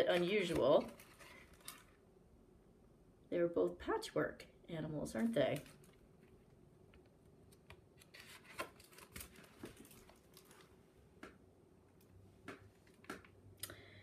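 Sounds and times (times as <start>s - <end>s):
book pages turning: 0.0s - 2.0s, 7.0s - 11.3s
faint rustles and clicks: 0.0s - 2.0s.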